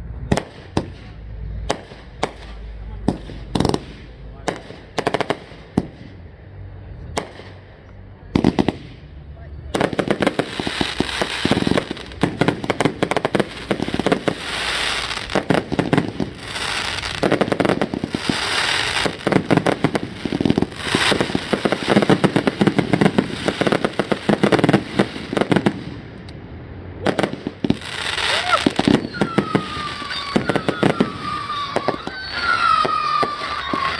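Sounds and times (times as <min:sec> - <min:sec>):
fireworks crackling and popping: 0:00.0 - 0:26.4, 0:27.0 - 0:33.9
fireworks hissing: 0:09.8 - 0:26.2, 0:27.1 - 0:33.9.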